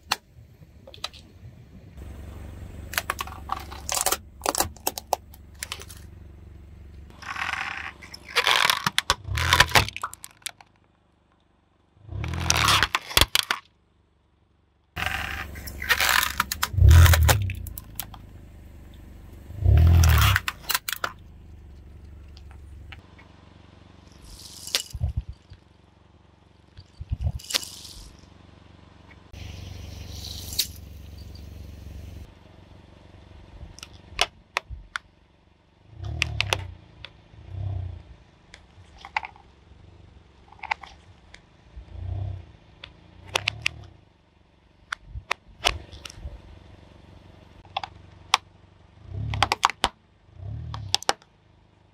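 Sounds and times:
tyre crushing silicone toys: 3.0 - 6.1, 7.1 - 10.8, 12.2 - 13.7, 15.0 - 18.2
sharp pops and clicks: 7.1 - 10.8, 49.3 - 50.0, 50.7 - 51.3.

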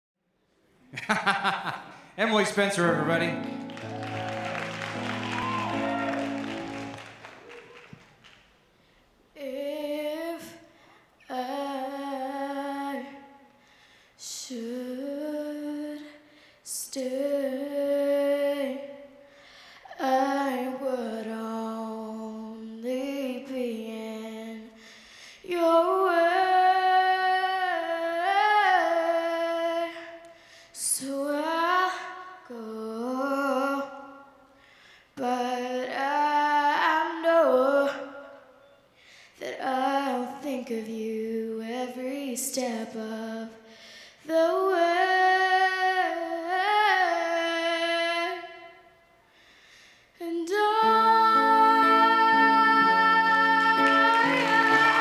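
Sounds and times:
girl singing unaccompanied: 9.3 - 13.5, 14.2 - 19.2, 19.8 - 24.8, 25.4 - 34.4, 35.2 - 38.5, 39.4 - 48.8, 50.2 - 55.0.

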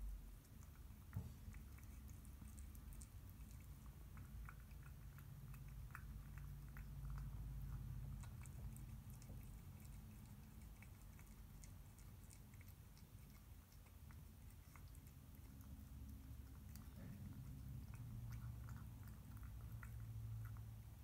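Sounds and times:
cat chewing food: 0.0 - 21.0
low steady hum: 0.0 - 21.0.

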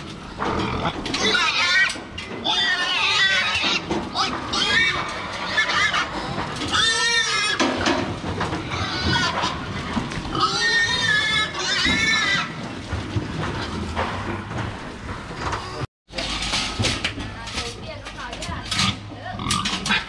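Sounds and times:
pigs squealing: 0.4 - 7.8, 8.6 - 12.6.

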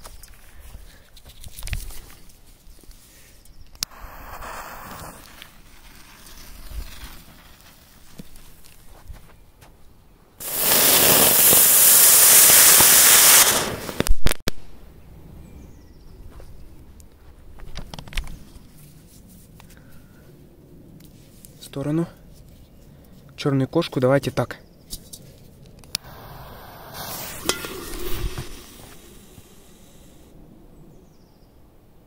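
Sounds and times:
firecracker hissing: 3.8 - 8.2, 10.4 - 14.3, 26.0 - 30.3
firecracker bangs: 10.4 - 14.0, 26.0 - 29.8.

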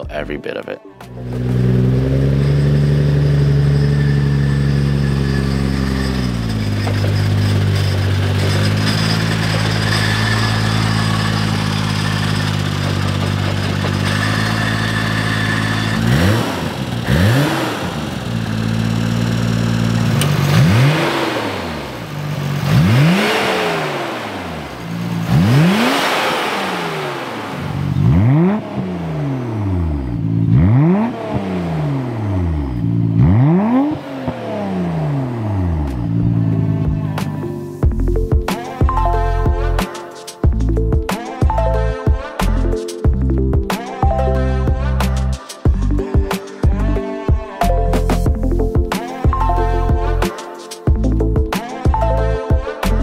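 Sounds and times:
car engine idling: 1.0 - 39.8
engine revving: 1.1 - 39.9.

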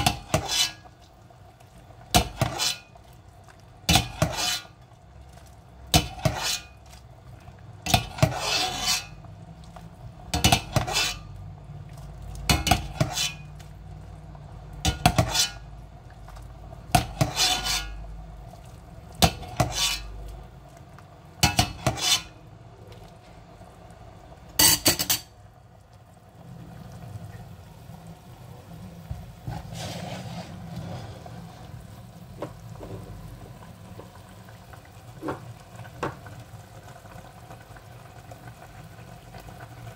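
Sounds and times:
metal ladle clinking on pot: 24.6 - 25.3.

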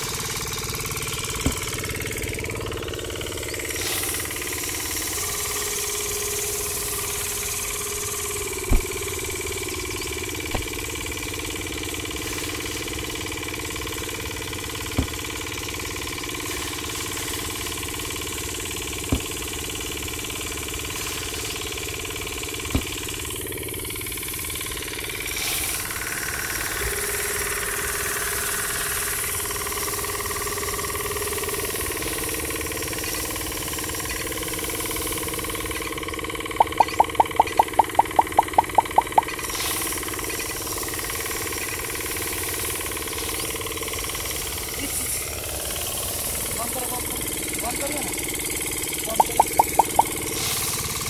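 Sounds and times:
grinding mill running: 0.0 - 51.0
sharp clicks: 36.6 - 39.4, 49.1 - 50.2.

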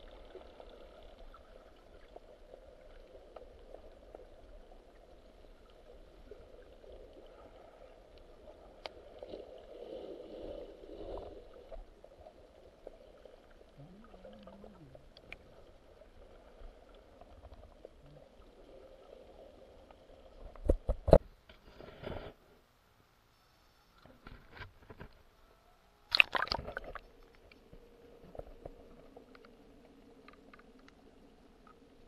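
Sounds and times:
underwater water wash: 0.0 - 21.2, 26.1 - 32.0
small clicks: 28.3 - 31.0.

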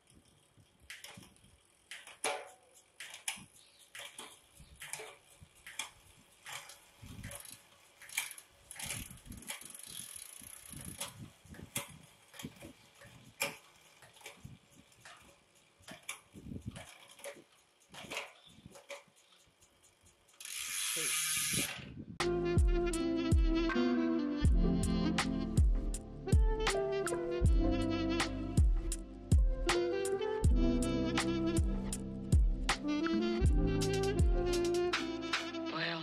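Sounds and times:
bicycle derailleur clicking: 0.0 - 22.0.

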